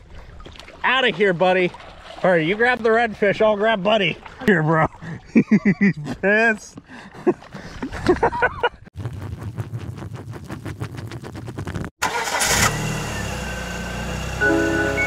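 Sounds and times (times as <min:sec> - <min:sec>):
engine cranking on starter: 0:12.0 - 0:14.4.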